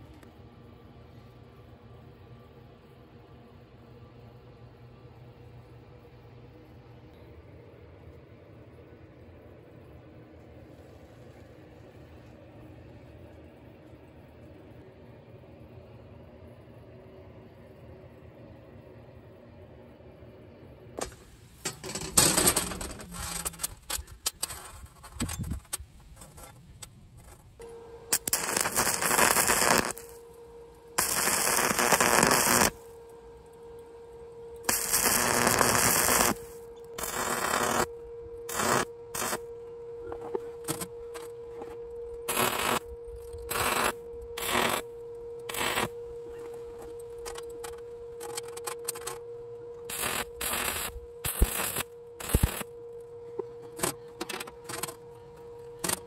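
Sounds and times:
steady hum: 0:00.0 - 0:56.0
welding arc crackling: 0:21.0 - 0:26.4, 0:27.4 - 0:33.4, 0:34.6 - 0:39.5, 0:42.2 - 0:49.2, 0:49.8 - 0:53.0, 0:55.8 - 0:56.0.

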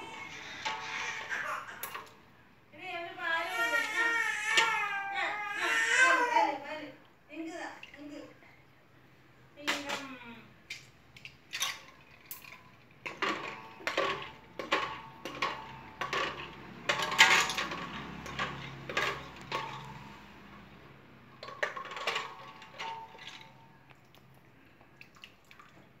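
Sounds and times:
metal tongs clanking against pot: 0:11.6 - 0:20.2.

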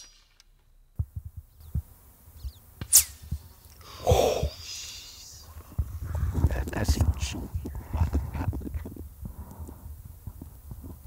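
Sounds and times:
bullet snap and falling whistle: 0:00.0 - 0:00.6, 0:02.8 - 0:03.4.

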